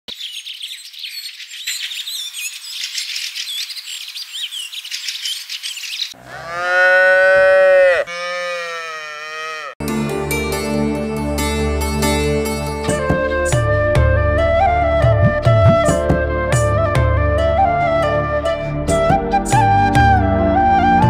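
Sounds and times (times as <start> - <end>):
birds chirping: 0.1 - 9.7
calf mooing: 6.2 - 9.8
music: 9.8 - 21.0.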